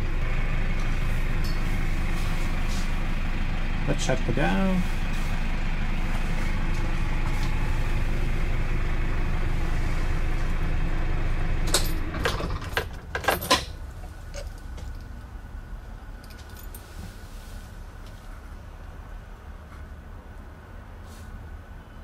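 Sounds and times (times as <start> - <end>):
bus engine idling: 0.0 - 22.0.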